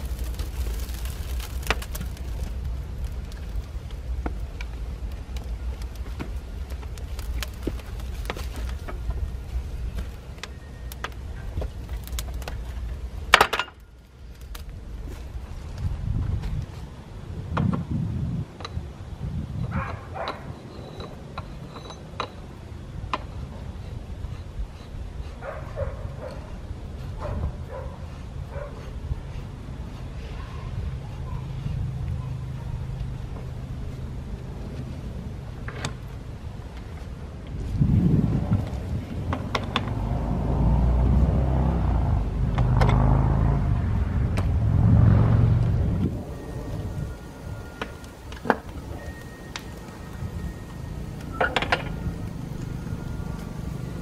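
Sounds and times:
low rumble: 0:37.2 - 0:54.0.

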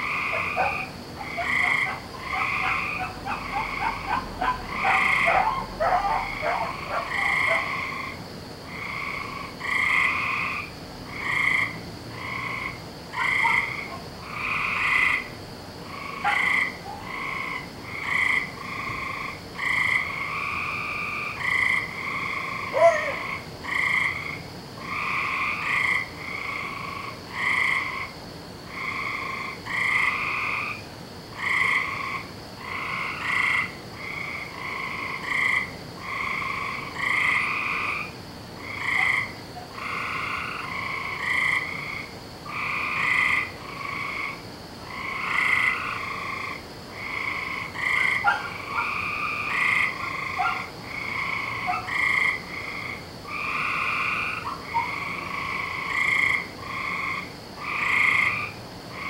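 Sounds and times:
frogs croaking: 0:00.0 - 0:59.0.

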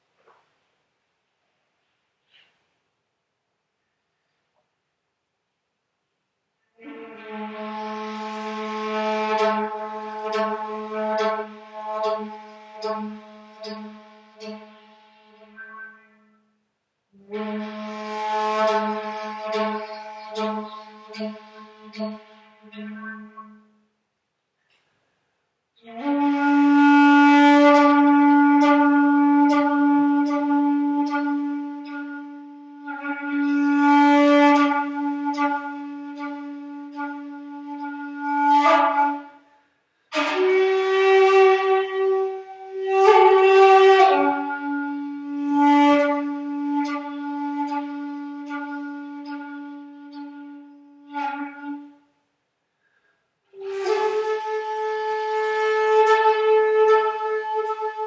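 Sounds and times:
breath noise: 0:01.7 - 0:02.9, 0:52.6 - 0:53.6
shakuhachi flute long low notes: 0:06.7 - 0:24.0, 0:25.8 - 0:52.2, 0:53.4 - 0:58.0.

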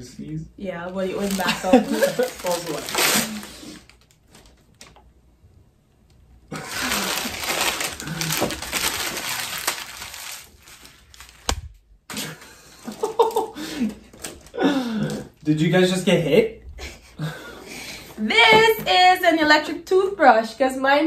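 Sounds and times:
wrapping paper tearing and rustling: 0:01.1 - 0:05.0, 0:06.5 - 0:11.8.

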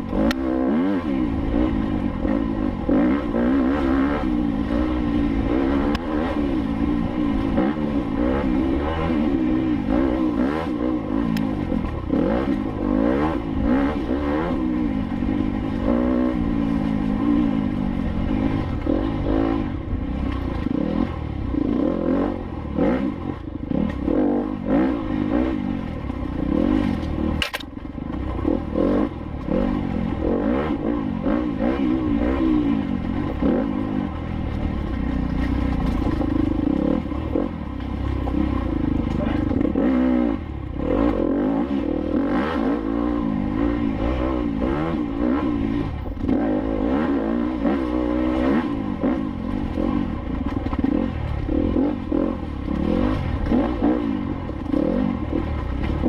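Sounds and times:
motorcycle engine revving: 0:00.0 - 0:56.0
clattering over rough ground: 0:34.2 - 0:39.8, 0:49.5 - 0:51.5.

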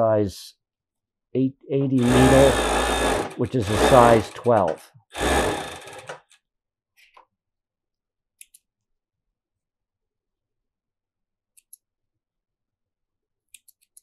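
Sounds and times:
scissors snipping thread: 0:13.5 - 0:14.0.

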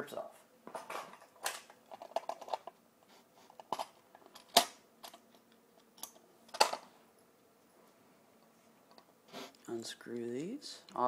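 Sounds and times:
clicks and rattles of handled parts: 0:00.7 - 0:02.8, 0:03.5 - 0:06.9.

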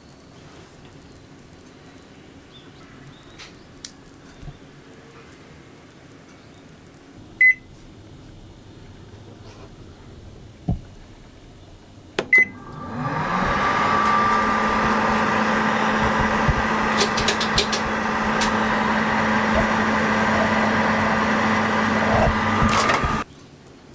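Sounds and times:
clicks: 0:12.2 - 0:23.2
microwave oven humming: 0:12.2 - 0:23.2
keypad beep: 0:12.3 - 0:12.6.

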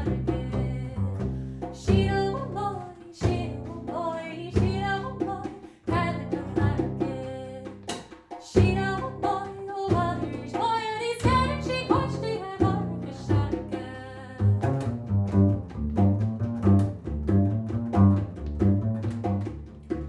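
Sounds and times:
double bass playing: 0:00.0 - 0:08.0, 0:08.6 - 0:20.0
woman singing: 0:00.0 - 0:14.9
hand drum taps: 0:03.2 - 0:20.0.

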